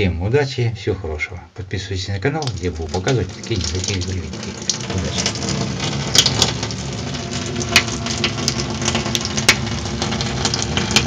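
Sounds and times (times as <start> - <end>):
water pouring into bathtub: 2.2 - 11.0.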